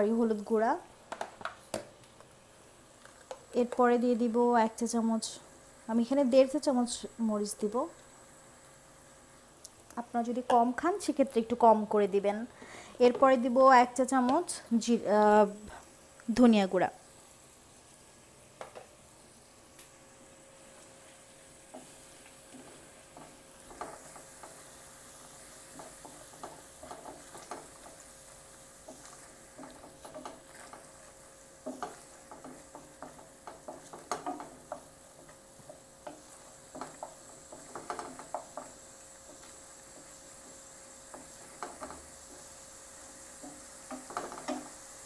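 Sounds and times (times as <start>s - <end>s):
faint sizzle in oil: 0.0s - 45.0s
wooden spatula scraping frying pan: 20.6s - 45.0s.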